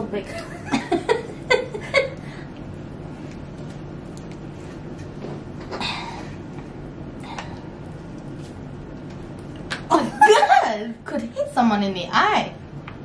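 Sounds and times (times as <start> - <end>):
low steady hum: 0.0 - 13.0
women laughing: 0.3 - 2.2, 9.9 - 10.9.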